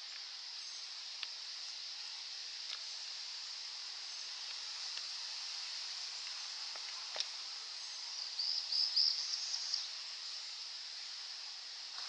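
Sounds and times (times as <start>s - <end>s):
steady high hiss: 0.0s - 12.0s
small bird chirping: 7.8s - 9.9s.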